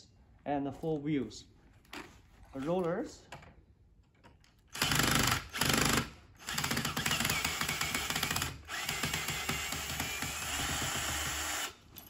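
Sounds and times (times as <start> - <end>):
cordless drill running: 4.8 - 11.9.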